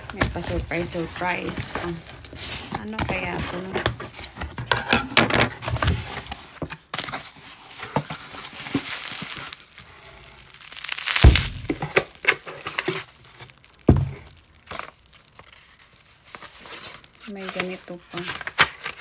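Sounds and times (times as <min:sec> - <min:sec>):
cardboard and paper rustling: 0:00.0 - 0:19.0
paper tearing: 0:08.6 - 0:13.6
heavy thumps: 0:11.1 - 0:12.2, 0:13.8 - 0:14.4.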